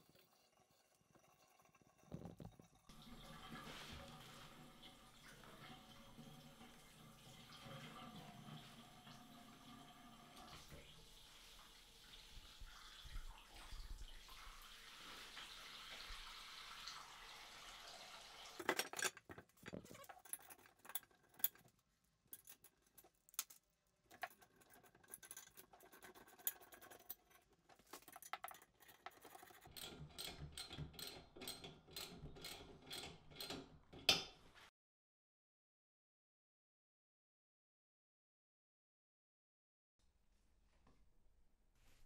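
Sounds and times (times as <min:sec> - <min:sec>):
water running into sink: 0:02.0 - 0:19.0
metal plumbing fittings clinking: 0:18.6 - 0:34.4.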